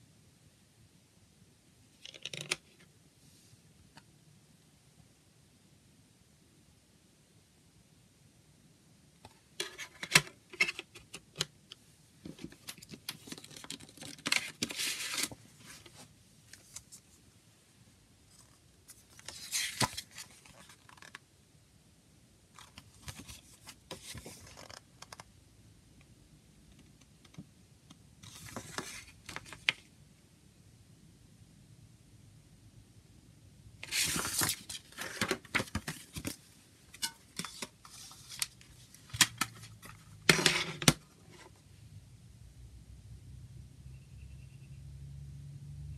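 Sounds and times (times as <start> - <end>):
paper rustling and sliding: 12.5 - 17.0, 18.3 - 21.1, 33.8 - 36.3.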